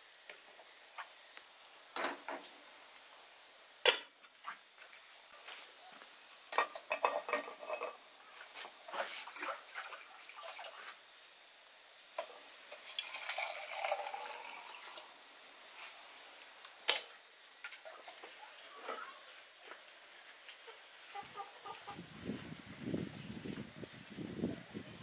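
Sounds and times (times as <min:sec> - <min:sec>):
metal kettle clinking and rattling: 0:06.6 - 0:08.0
water pouring into kettle: 0:12.7 - 0:15.2.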